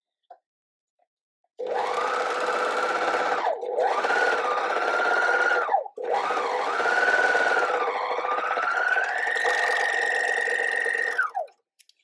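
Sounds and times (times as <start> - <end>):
overlocker motor whine: 3.4 - 11.4.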